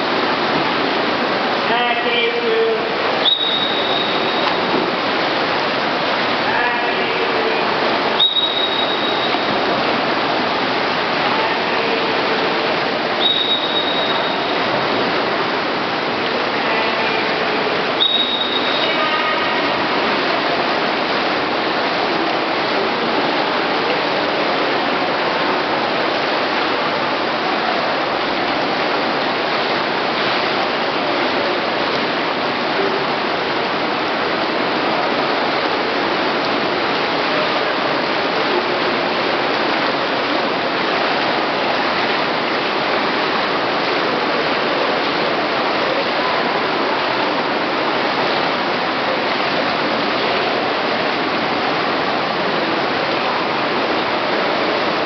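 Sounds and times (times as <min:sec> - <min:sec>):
water splashing in swimming pool: 0:00.0 - 0:55.0.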